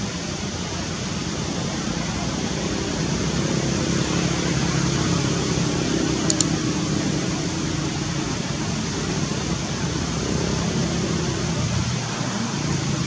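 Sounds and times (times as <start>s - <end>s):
quick clicks: 6.3s - 6.6s.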